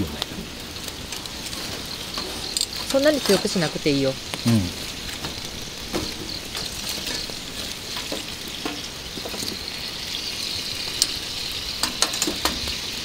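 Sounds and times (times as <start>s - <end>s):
food sizzling on a grill: 0.0s - 13.0s.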